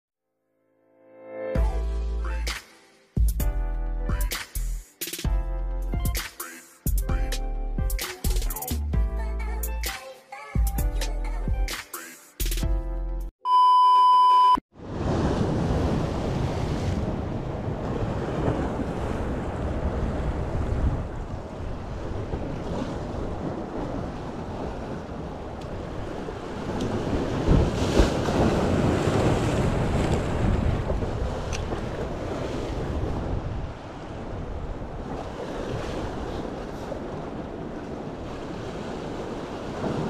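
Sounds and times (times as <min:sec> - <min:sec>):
test-tone beep: 0:13.4 - 0:14.6
surf washing at rocks: 0:14.8 - 0:40.0
wind buffeting microphone: 0:15.0 - 0:40.0.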